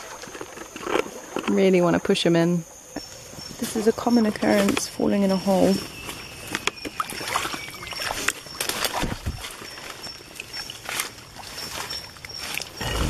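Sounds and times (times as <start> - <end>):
footsteps splashing through water: 6.5 - 13.0.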